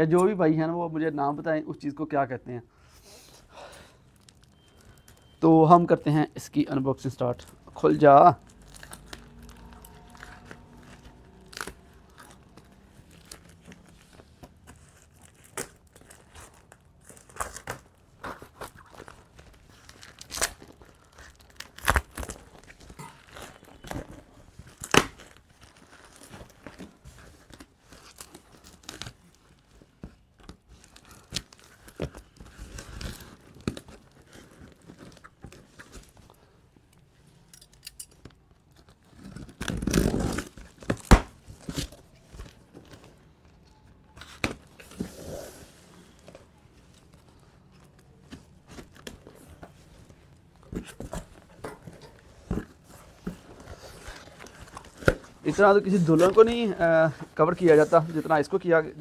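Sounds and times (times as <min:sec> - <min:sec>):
plastic wrap tearing and crinkling: 0:04.1 - 0:05.4, 0:06.6 - 0:36.4, 0:38.1 - 0:59.0.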